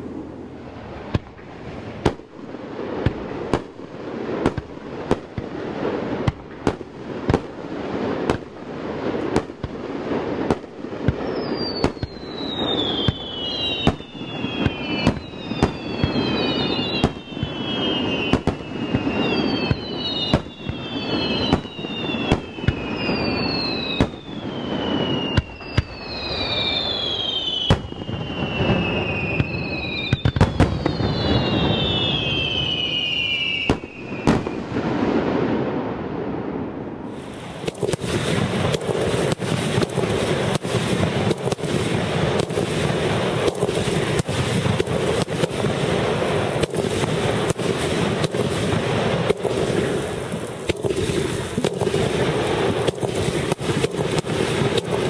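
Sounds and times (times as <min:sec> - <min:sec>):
firework booms: 0:00.0 - 0:55.0
firework rumble and crackle: 0:00.0 - 0:55.0
falling firework whistles: 0:10.4 - 0:35.6, 0:37.0 - 0:55.0.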